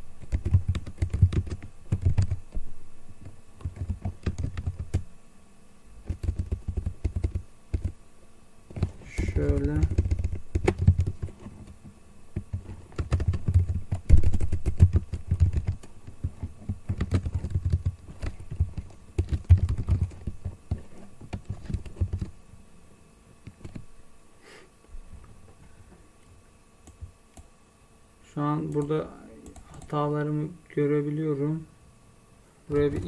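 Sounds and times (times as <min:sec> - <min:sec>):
computer keyboard typing: 0:00.2 - 0:02.4, 0:03.6 - 0:05.0, 0:06.0 - 0:08.0, 0:08.7 - 0:11.4, 0:12.4 - 0:22.3, 0:23.4 - 0:23.8, 0:28.7 - 0:30.0, 0:32.7 - 0:33.0.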